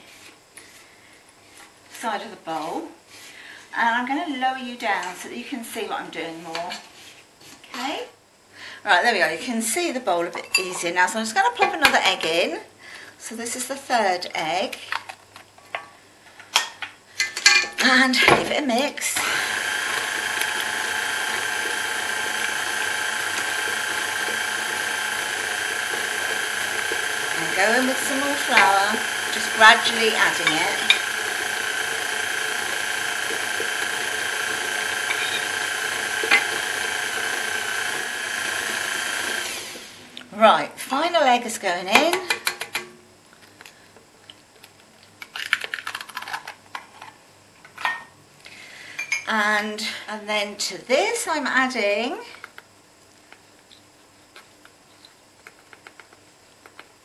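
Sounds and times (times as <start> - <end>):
stand mixer running: 19.2 - 40.0.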